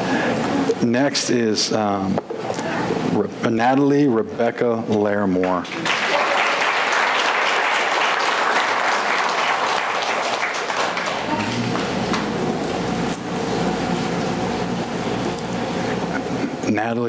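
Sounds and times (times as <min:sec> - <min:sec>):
audience applauding: 0:05.6 - 0:12.4.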